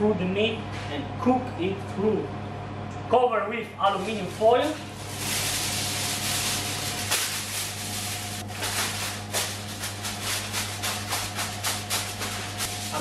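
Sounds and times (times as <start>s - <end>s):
aluminium foil crinkling: 3.9s - 13.0s.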